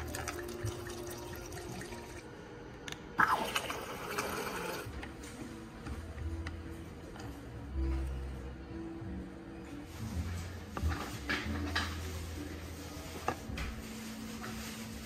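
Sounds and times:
liquid pouring into plastic cup: 0.0 - 2.3.

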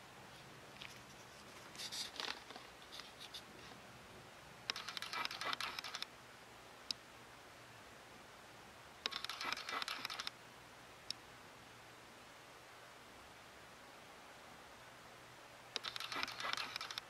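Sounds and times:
faint room hiss: 0.0 - 17.0
soft crackling and clicking: 0.4 - 3.8, 4.7 - 6.1, 9.0 - 10.4, 15.7 - 17.0.

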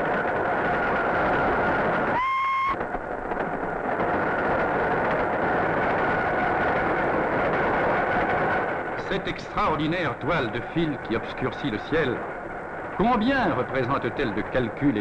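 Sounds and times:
electric locomotive rumbling: 0.0 - 15.0
locomotive whistle blast: 2.1 - 2.8.

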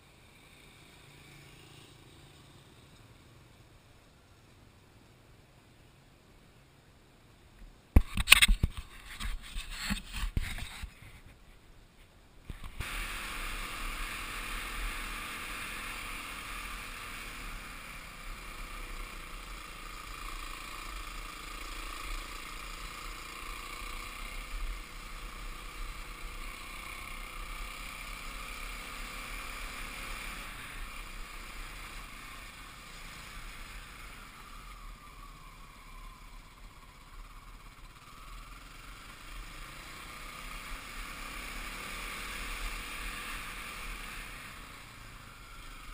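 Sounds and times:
rush of passing air: 12.5 - 20.7
dirt bike engine running: 12.5 - 45.9.

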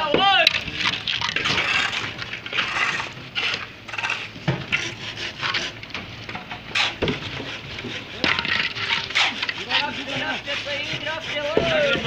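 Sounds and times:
steel pans scraping concrete: 0.0 - 12.0.

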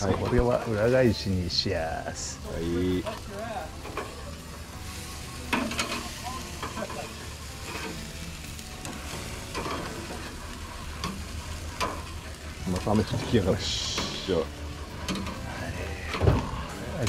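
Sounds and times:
food sizzling on a grill: 0.0 - 17.0
metal tongs scraping a grate: 3.8 - 4.3, 4.9 - 14.4, 15.0 - 16.2.

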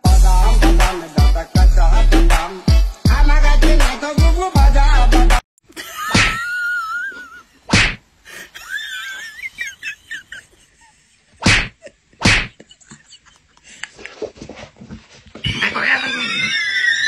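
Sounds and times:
sharp smacks: 6.2 - 6.4, 7.7 - 8.0, 11.4 - 12.6.

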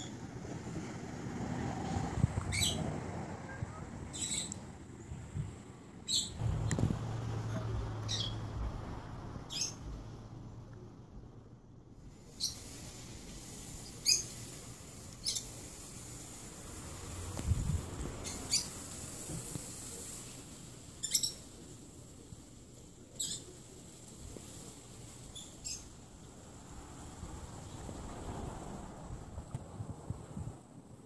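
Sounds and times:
faint steady hiss: 0.0 - 31.0
high-pitched bird chirps: 4.1 - 4.6, 9.5 - 9.8, 21.0 - 21.4
low rumble: 6.4 - 12.0.

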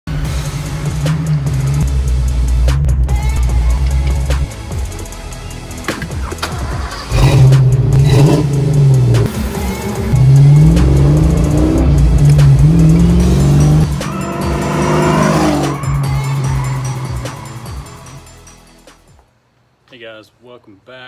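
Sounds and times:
car engine revving: 0.4 - 2.9, 6.9 - 18.2.

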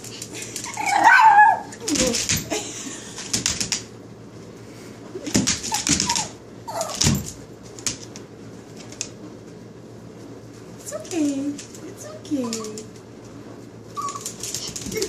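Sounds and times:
puppies yipping: 0.6 - 1.8, 5.6 - 7.0, 14.0 - 14.4.

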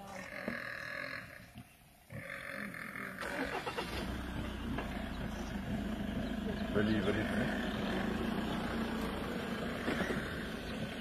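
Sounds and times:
warthog squealing: 2.1 - 4.0
noisy rumble: 3.1 - 11.0.

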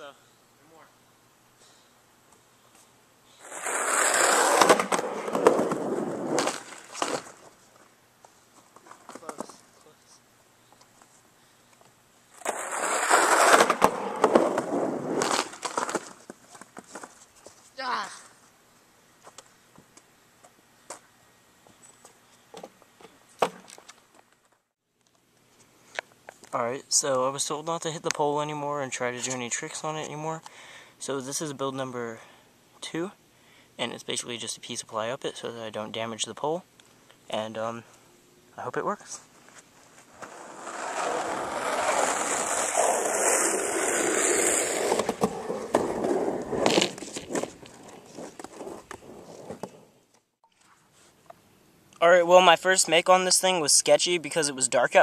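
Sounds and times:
skateboard clattering on ground: 3.4 - 7.5, 12.4 - 17.2, 40.1 - 49.8.

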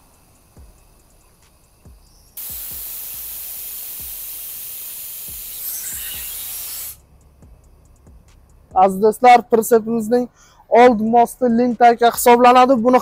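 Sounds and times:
compressed air hissing: 0.0 - 7.1.

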